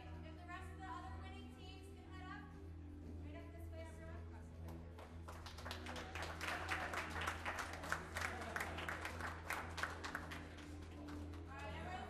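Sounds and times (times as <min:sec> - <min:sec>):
audience applauding: 0:05.3 - 0:11.6.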